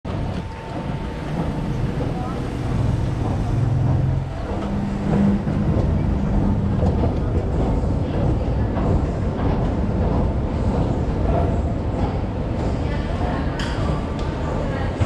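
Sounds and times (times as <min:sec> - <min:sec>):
escalator running: 0:00.1 - 0:11.2
faint voices: 0:00.1 - 0:15.0
street traffic rumble: 0:00.1 - 0:15.0.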